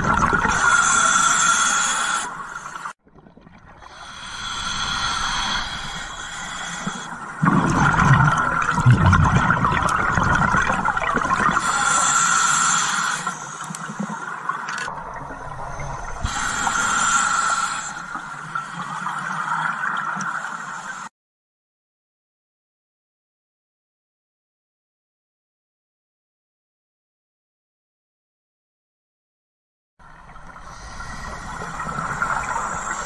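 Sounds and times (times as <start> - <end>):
gurgling exhaled bubbles: 0.0 - 12.7
regulator hissing inhales: 0.5 - 3.0, 3.9 - 7.2, 11.6 - 14.0, 16.0 - 19.0, 30.6 - 33.0.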